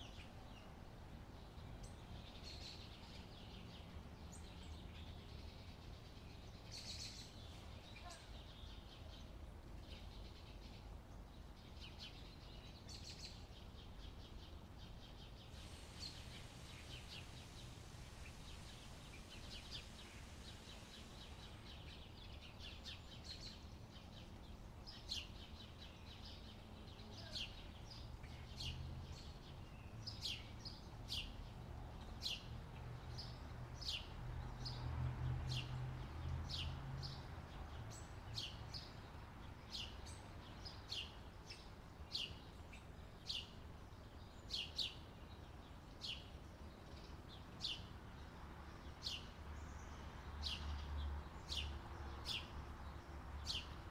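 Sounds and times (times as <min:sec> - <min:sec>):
birds chirping: 0:01.3 - 0:34.8.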